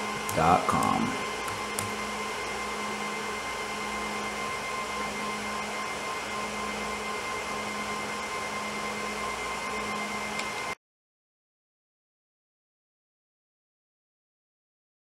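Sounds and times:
fan whirring hiss: 0.0 - 10.8.

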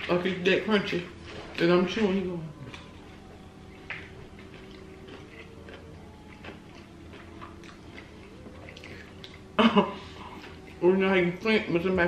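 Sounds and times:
steady low hum: 0.0 - 12.0
chewing crispy food: 1.2 - 10.8.

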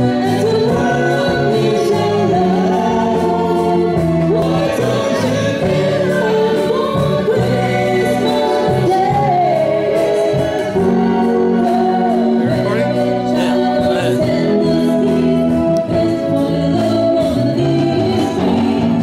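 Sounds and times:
electric guitars: 0.0 - 19.0
people singing together: 0.0 - 19.0.

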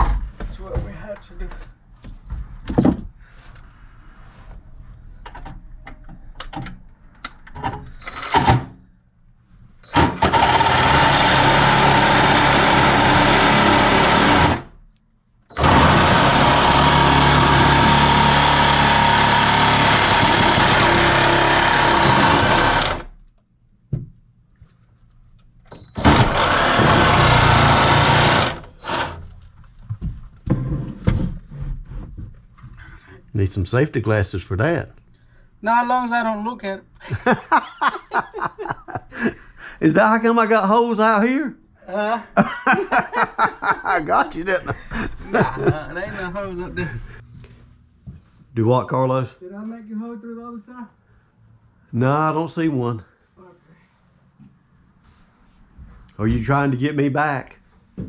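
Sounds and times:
power tool cutting metal: 9.9 - 14.7, 15.5 - 23.1, 26.0 - 29.2.

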